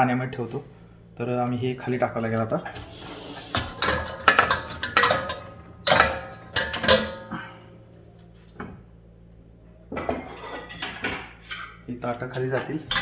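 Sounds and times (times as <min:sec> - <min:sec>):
steel bowls clanking: 0:02.6 - 0:07.4.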